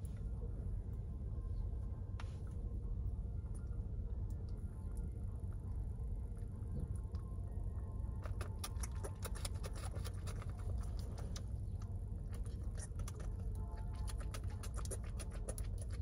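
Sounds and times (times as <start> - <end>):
animal suckling from bottle: 8.2 - 11.6, 12.3 - 16.0.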